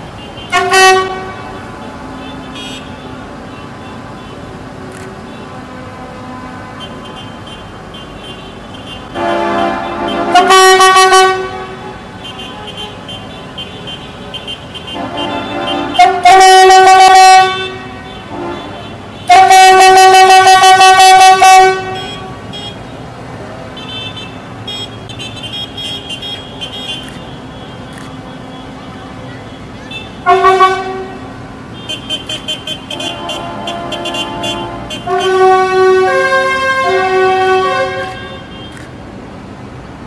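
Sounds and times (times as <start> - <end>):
vehicle horn blasts: 0.2 - 1.6, 2.2 - 4.4, 5.3 - 22.8, 29.9 - 38.8.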